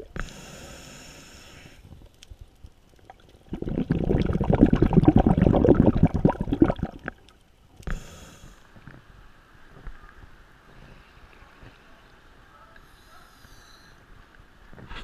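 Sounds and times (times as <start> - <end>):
underwater exhaust bubbles: 3.0 - 7.3.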